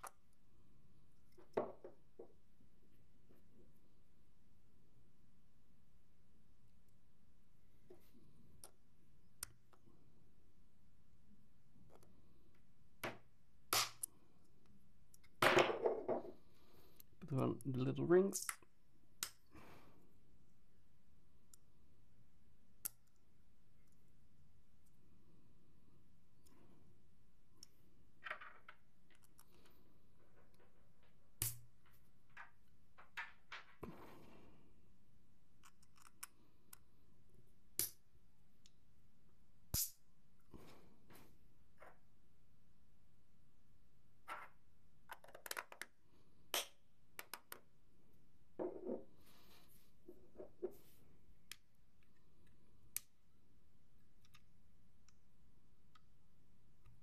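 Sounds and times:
plastic parts clicking: 35.6s - 36.8s
plastic parts clicking and tapping: 35.6s - 36.9s, 45.0s - 47.7s, 54.2s - 55.2s.

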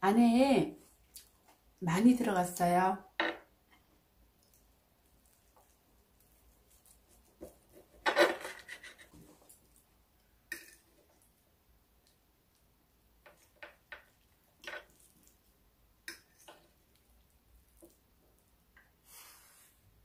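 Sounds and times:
knife scraping a plate: 8.0s - 9.2s.

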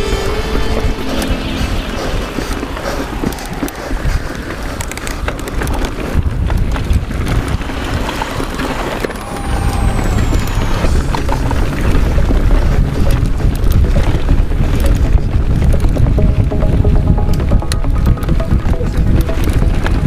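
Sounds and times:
wind buffeting microphone: 0.0s - 16.2s
bike rattling over bumps: 4.2s - 9.6s, 11.2s - 16.2s.

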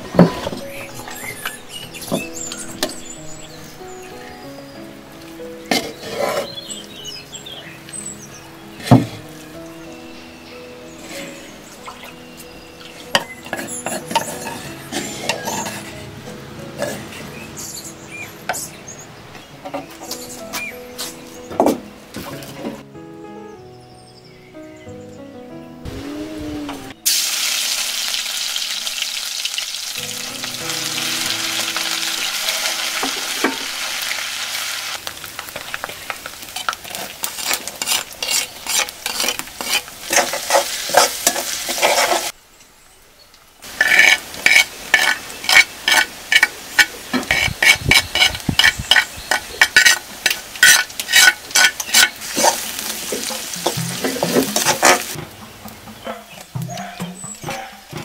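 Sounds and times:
metal spoon scraping wok: 5.7s - 6.7s, 13.2s - 16.1s, 36.4s - 42.3s, 43.7s - 55.2s
food sizzling in oil: 27.0s - 42.4s, 43.6s - 56.6s.

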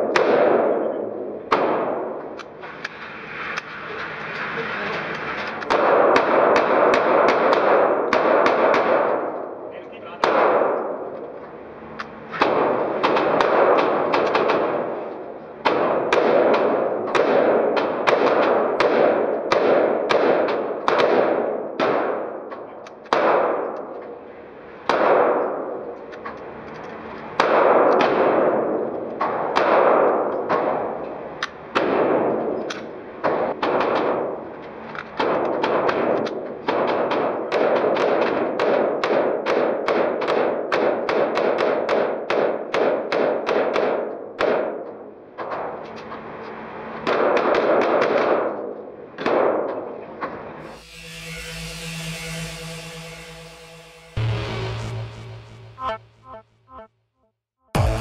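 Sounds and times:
echoing rifle gunshots: 0.0s - 2.3s, 5.7s - 9.6s, 10.2s - 11.2s, 12.4s - 15.0s, 15.6s - 22.4s, 23.1s - 23.9s, 24.8s - 25.9s, 27.4s - 31.0s, 31.7s - 32.6s, 35.2s - 44.8s.

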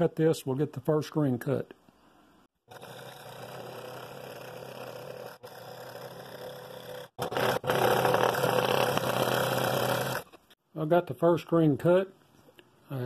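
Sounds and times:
scroll saw cutting wood: 2.7s - 10.5s.

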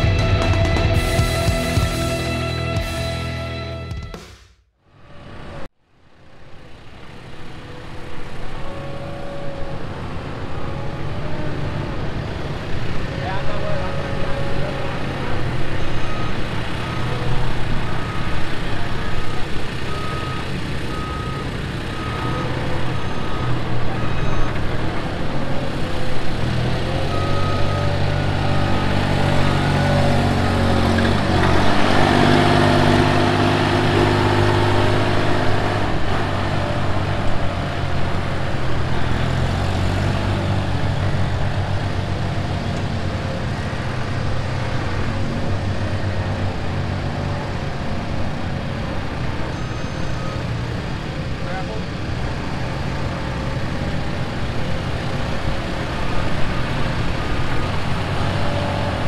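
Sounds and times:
diesel loader engine running: 0.0s - 4.1s, 6.5s - 59.0s
reversing beeper: 0.0s - 4.2s, 13.1s - 37.3s, 48.5s - 52.0s.

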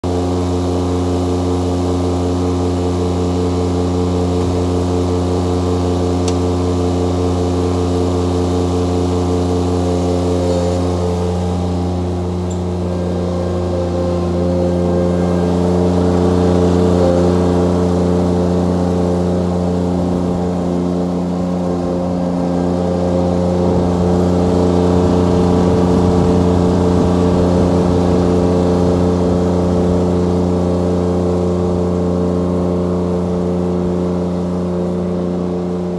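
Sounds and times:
tractor diesel engine running: 0.0s - 35.9s.

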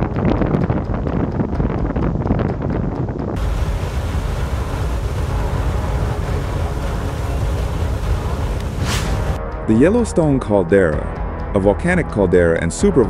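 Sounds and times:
wind rumble on microphone: 0.0s - 9.4s
geyser water and steam jetting: 3.4s - 9.4s.

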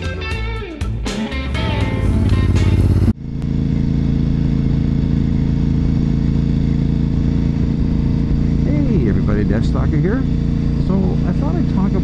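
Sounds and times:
guitar and drums music: 0.0s - 3.2s
motorcycle engine cruising: 0.0s - 12.0s.

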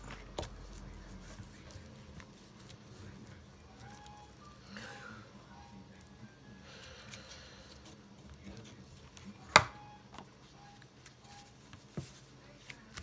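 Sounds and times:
paper rustling: 11.0s - 13.0s.

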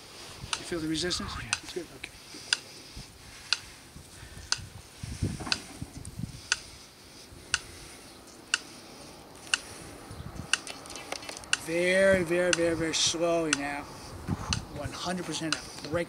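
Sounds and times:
faint irregular clicks: 0.5s - 0.7s, 1.5s - 2.8s, 3.4s - 3.7s, 4.4s - 4.7s, 5.5s - 6.7s, 7.5s - 7.8s, 8.5s - 9.7s, 10.5s - 11.7s, 12.5s - 12.7s, 15.5s - 16.0s.

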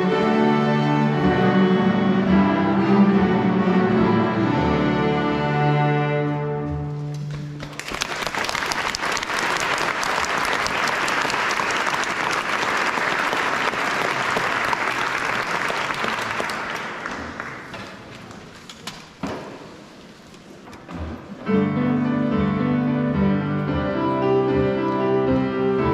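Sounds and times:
audience applauding: 7.3s - 18.1s.

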